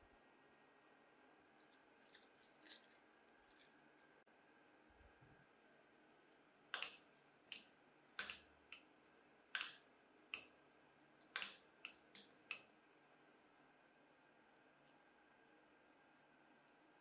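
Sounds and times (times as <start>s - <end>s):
sharp clicks of staples prised off: 6.7s - 8.9s, 9.5s - 10.6s, 11.2s - 12.7s.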